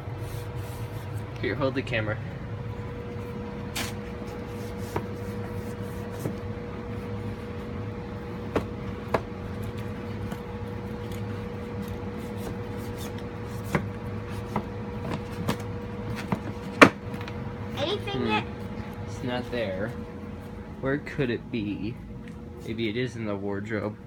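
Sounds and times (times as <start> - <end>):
steady hum: 0.0 - 24.0
books knocking on wooden shelves: 6.1 - 6.4, 8.4 - 9.4, 13.6 - 17.4.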